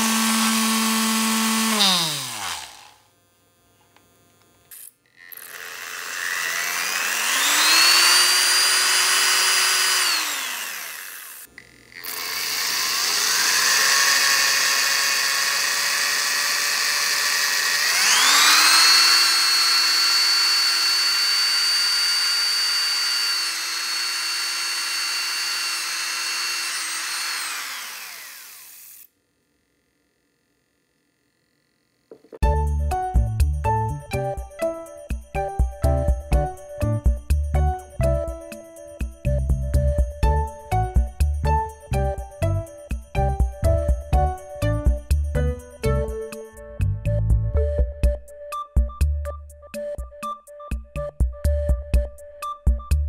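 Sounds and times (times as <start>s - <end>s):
electric drill running: 0.0s - 3.1s, 4.7s - 29.1s.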